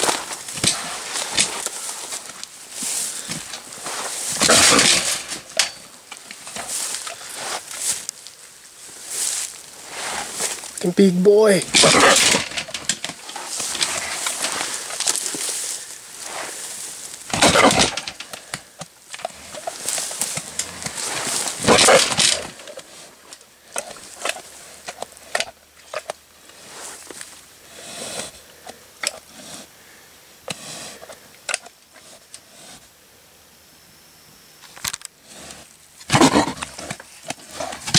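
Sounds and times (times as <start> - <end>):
pig snuffling: 0.0 - 11.0, 11.7 - 29.8, 35.2 - 37.9
clicks and rustles in dirt: 0.0 - 29.3, 34.6 - 37.9
pig huffing: 11.7 - 25.5, 27.6 - 29.8, 35.2 - 37.9.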